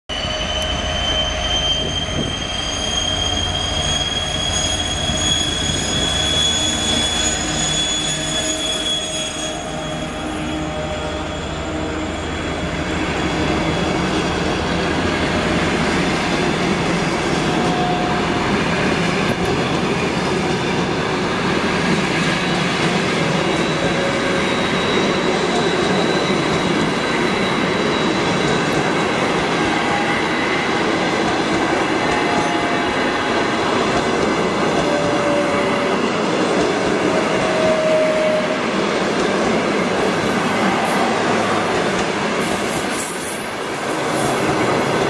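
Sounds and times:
train wheels rumbling and clattering: 10.8s - 45.0s.

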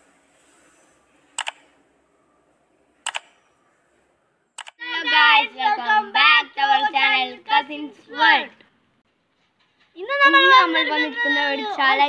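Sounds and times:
sharp double clicks: 1.4s - 1.7s, 3.0s - 3.4s, 4.6s - 4.8s.

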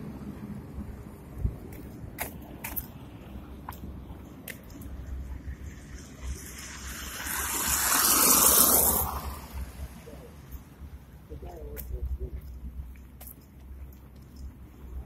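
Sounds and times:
low rumble of city traffic: 0.0s - 15.0s
car passing close by: 5.3s - 10.4s.

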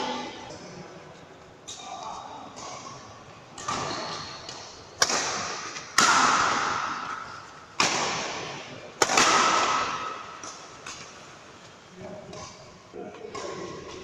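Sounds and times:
badminton racket hitting shuttlecock: 5.0s - 11.0s.

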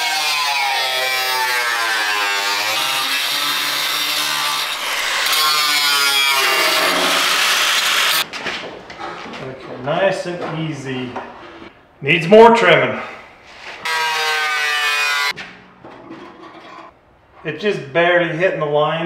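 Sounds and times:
angle grinder cutting sheet metal: 0.0s - 8.2s, 13.8s - 15.4s.

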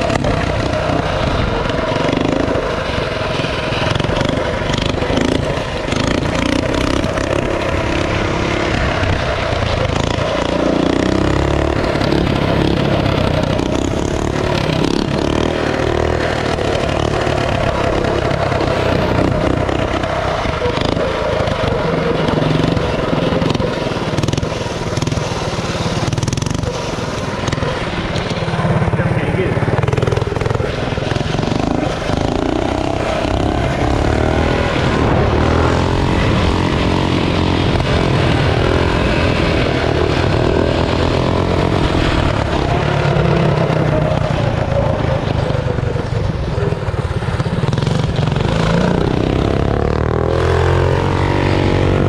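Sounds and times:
mini bike engine running: 0.0s - 52.0s.

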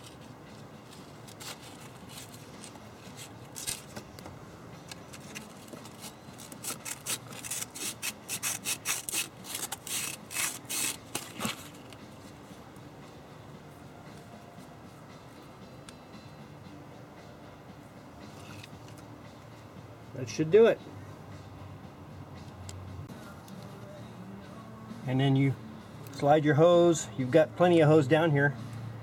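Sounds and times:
sandpaper rubbing on plastic: 5.4s - 11.6s.

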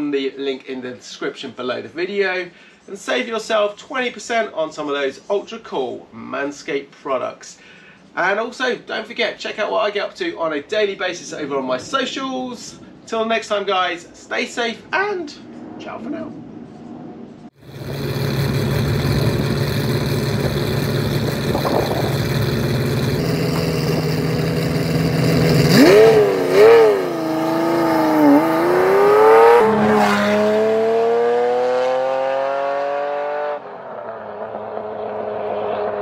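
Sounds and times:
sports car engine revving: 17.6s - 36.0s.

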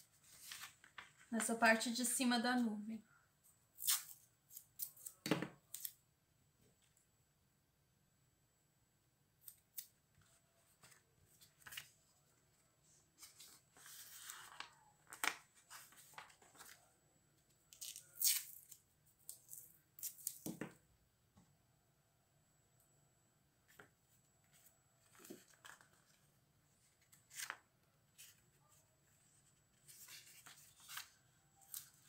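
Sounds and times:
paper rustling: 0.0s - 1.4s, 10.2s - 16.9s, 24.4s - 32.0s
masking tape pulled and torn: 3.8s - 6.0s, 17.7s - 20.4s.

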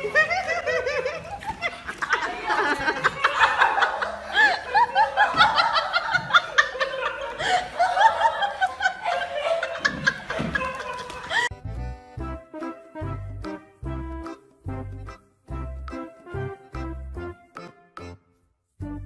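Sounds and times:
people laughing: 0.0s - 11.5s.

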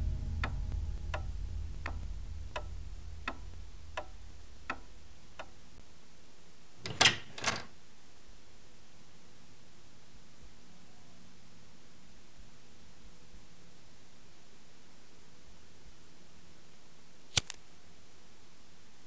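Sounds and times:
wall clock ticking: 0.0s - 5.8s.

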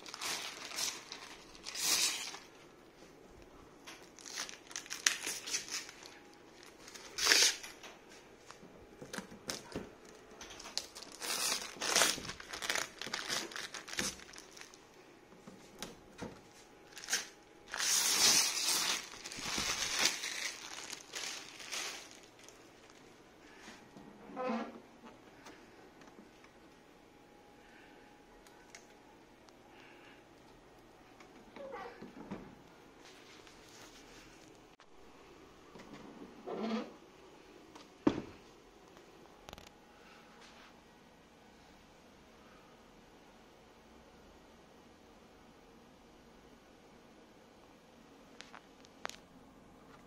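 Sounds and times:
plastic wrapping crinkling: 0.0s - 2.7s, 3.8s - 15.0s, 16.9s - 23.1s.

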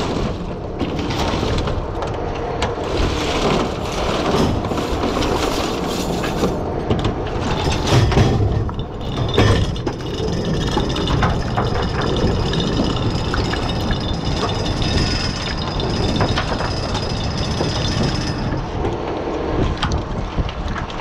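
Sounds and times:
oyster shells clattering on wood: 7.5s - 18.7s.

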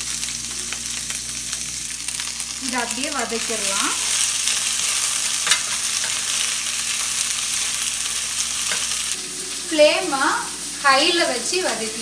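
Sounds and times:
beans sizzling in oil: 0.0s - 12.0s.

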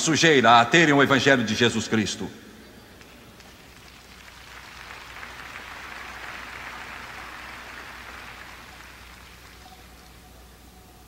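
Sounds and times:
audience applauding: 3.0s - 10.6s.

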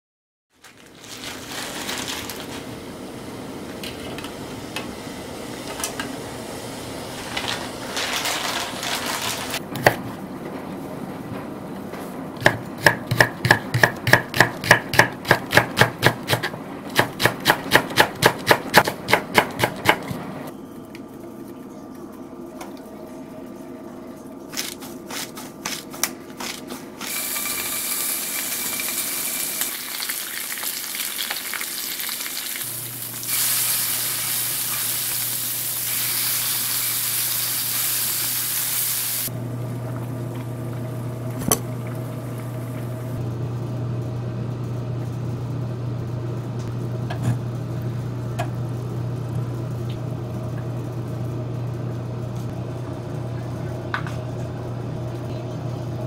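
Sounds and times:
knife chopping on wooden board: 12.4s - 20.2s
meat sizzling in a frying pan: 27.1s - 39.3s
water boiling in a saucepan: 27.2s - 41.0s.

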